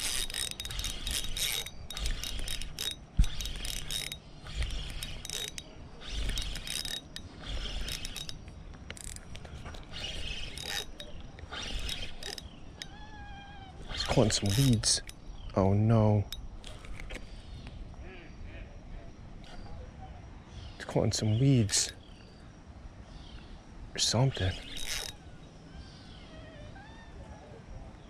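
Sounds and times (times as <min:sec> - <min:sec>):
fishing reel whirring and clicking: 0:00.0 - 0:13.2, 0:13.8 - 0:15.2, 0:24.3 - 0:25.2.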